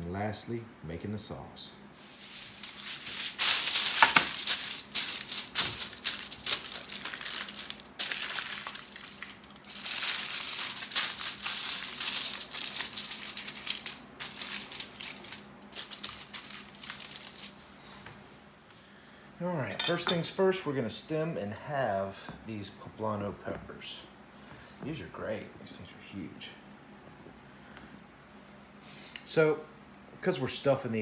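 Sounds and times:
aluminium foil crinkling: 2.0 - 17.6.

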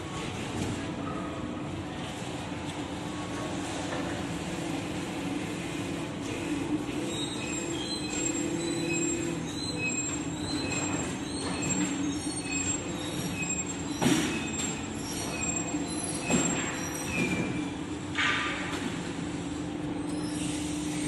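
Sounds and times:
short high-pitched squeaks: 7.1 - 17.7, 20.0 - 21.0.

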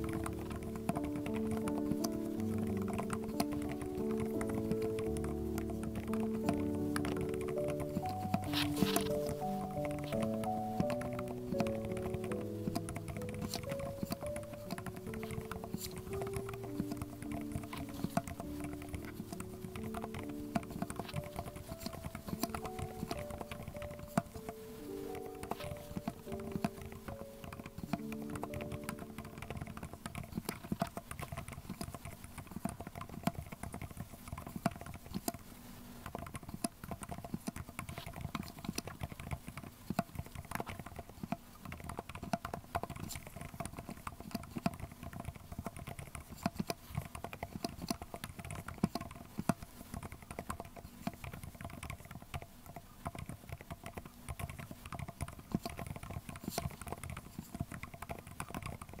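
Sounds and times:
mechanical keyboard typing: 0.0 - 59.0.

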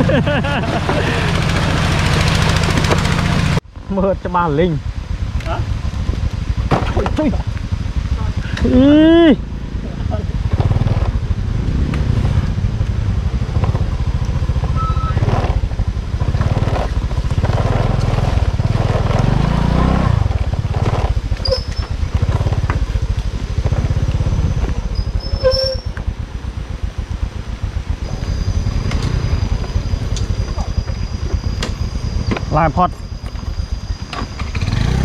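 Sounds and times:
scooter engine revving: 0.0 - 3.6, 6.5 - 25.6, 33.9 - 35.0
short high squeaks: 21.4 - 22.1, 24.5 - 26.0.

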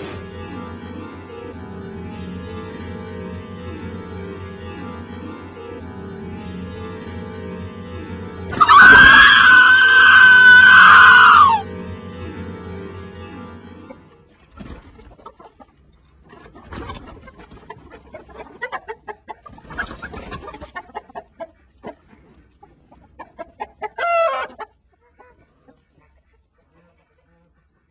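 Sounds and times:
chicken squawk: 8.6 - 11.6, 23.4 - 27.9
chicken clucking: 13.9 - 27.9.

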